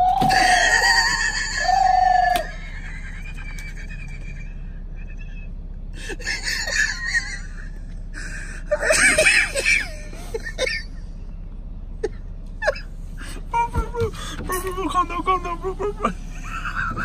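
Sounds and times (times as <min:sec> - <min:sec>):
high-pitched laughter: 0:00.2 - 0:08.0, 0:08.6 - 0:11.0.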